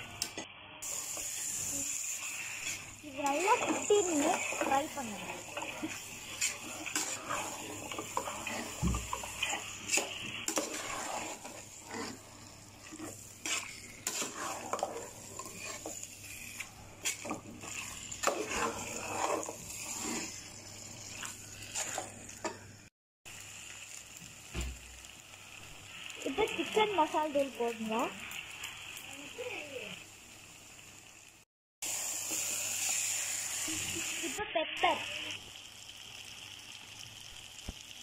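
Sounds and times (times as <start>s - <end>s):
spoon scraping metal pot: 2.6s - 16.0s, 16.6s - 20.5s, 21.1s - 22.6s.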